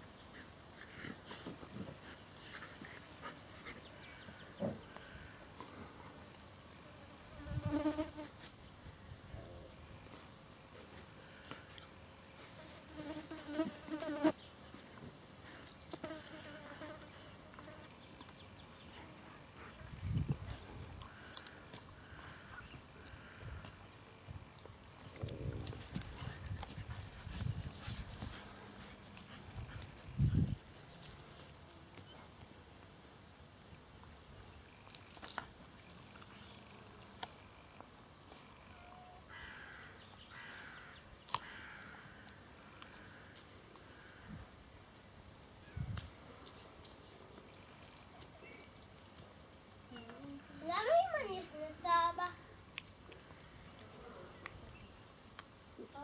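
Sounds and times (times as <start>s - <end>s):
birds calling faintly: 0.0s - 6.5s, 33.6s - 56.0s
flying insect buzzing: 7.4s - 8.3s
dog gnawing stick: 34.6s - 38.0s.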